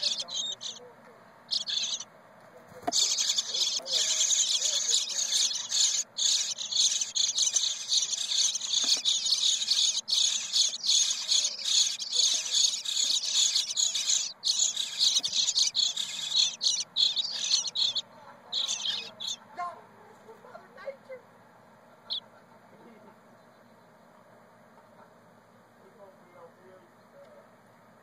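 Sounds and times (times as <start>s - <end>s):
nestlings begging chatter: 0.0s - 19.5s.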